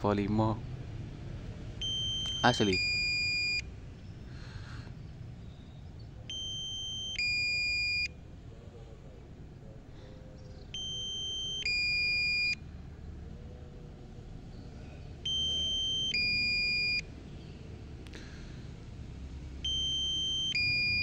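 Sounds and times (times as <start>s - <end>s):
low steady rumble: 0.0s - 21.0s
electronic two-tone beeping: 1.8s - 3.6s, 6.3s - 8.1s, 10.8s - 12.6s, 15.3s - 17.0s, 19.6s - 21.0s.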